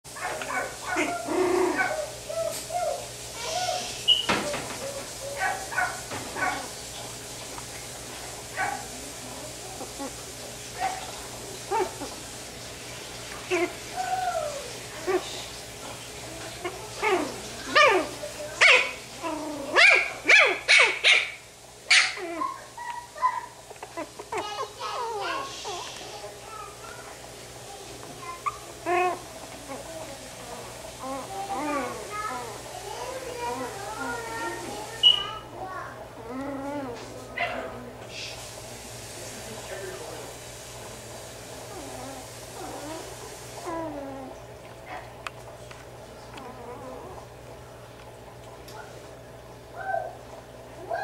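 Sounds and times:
puppy yapping: 0.2s - 6.8s, 8.6s - 8.9s, 16.6s - 25.5s.

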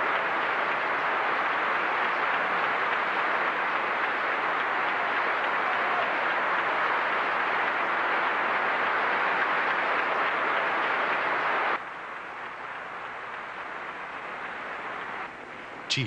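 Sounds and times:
large crowd applauding: 0.0s - 16.0s.

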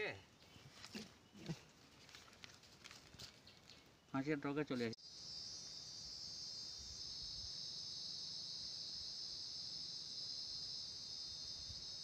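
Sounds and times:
insects chirring: 5.0s - 12.0s.

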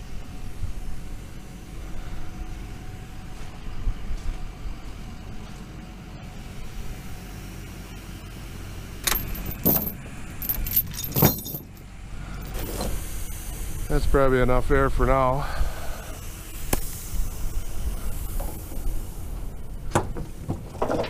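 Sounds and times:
wind rumble on microphone: 0.0s - 5.4s
chain rattling on wooden deck: 9.0s - 11.8s, 20.0s - 21.0s.

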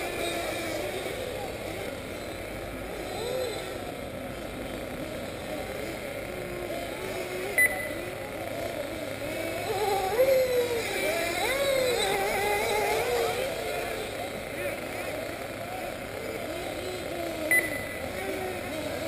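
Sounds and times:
small nitro engines revving: 0.0s - 19.0s
brief beep: 7.6s - 8.0s, 17.5s - 18.0s.

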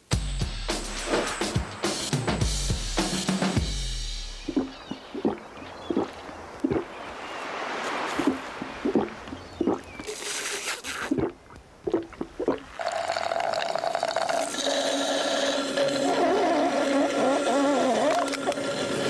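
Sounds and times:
squeal of straw suction: 7.2s - 11.2s, 15.0s - 19.0s
slurping through a straw: 7.9s - 19.0s.

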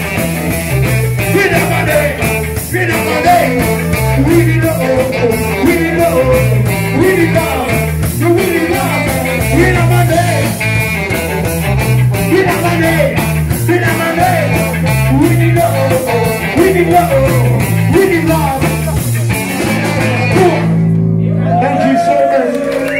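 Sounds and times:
drums: 0.0s - 22.9s
live rock band: 0.0s - 22.9s
man singing: 1.2s - 10.6s, 12.1s - 20.8s.

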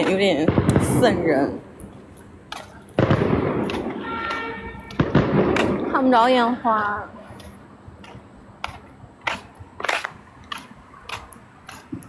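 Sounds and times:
faint outdoor background noise: 0.0s - 12.0s
footsteps walking: 1.8s - 5.8s, 6.7s - 12.0s.

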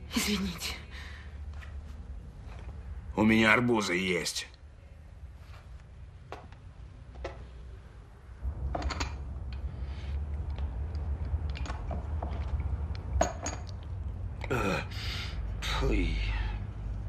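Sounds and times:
low hum: 4.6s - 17.0s
crockery clinking: 13.2s - 13.8s.

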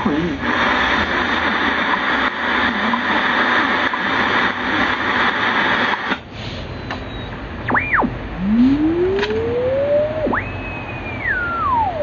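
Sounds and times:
static-laden radio signal: 0.0s - 6.1s, 7.7s - 12.0s
radio hiss: 0.0s - 6.2s
radio click: 1.4s - 6.2s, 9.1s - 9.5s
heterodyne whistle sweeping: 7.1s - 12.0s.

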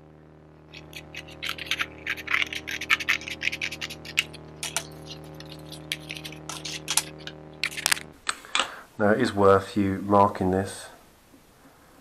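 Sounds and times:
scissors cutting card: 0.7s - 8.1s.

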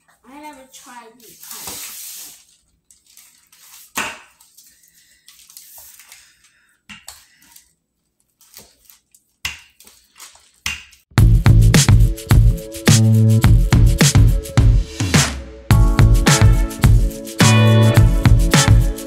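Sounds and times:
paper crinkling: 0.5s - 11.0s
loud music with a beat: 11.2s - 19.0s.

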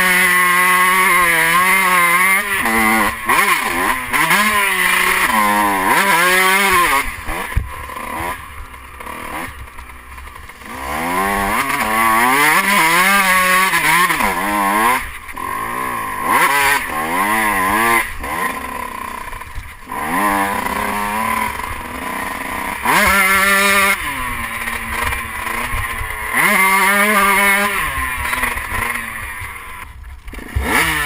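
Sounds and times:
motocross bike engine revving: 0.0s - 31.0s.

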